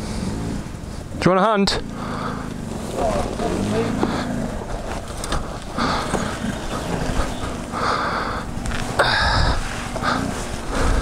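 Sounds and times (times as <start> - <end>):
dirt bike engine running low: 0.0 - 11.0
wind rumbling on microphone: 2.6 - 11.0.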